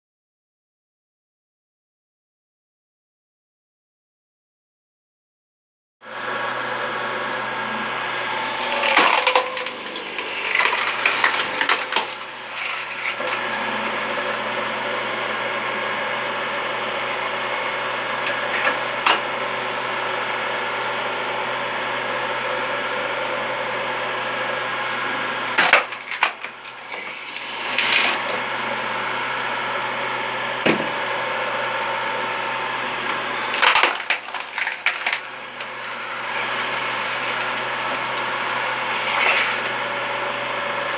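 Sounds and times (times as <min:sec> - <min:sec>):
electric motor hum: 0:06.1 - 0:40.9
logs cracking and splintering: 0:08.0 - 0:14.7, 0:25.3 - 0:29.9, 0:32.8 - 0:40.2.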